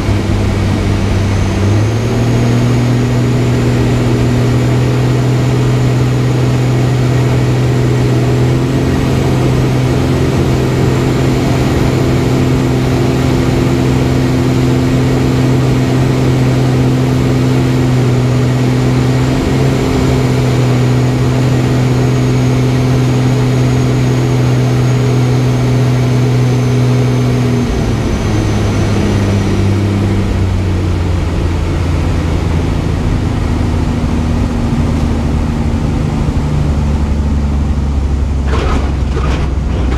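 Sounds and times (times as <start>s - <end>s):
propeller plane engine: 0.0s - 39.9s.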